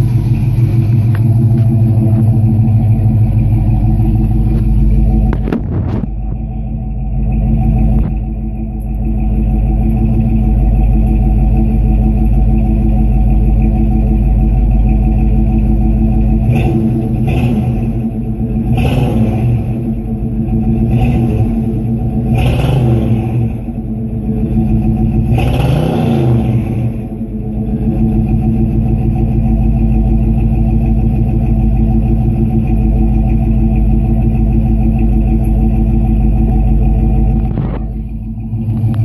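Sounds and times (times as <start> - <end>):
car engine idling through exhaust: 0.0 - 39.0
engine revving blips: 16.3 - 28.5.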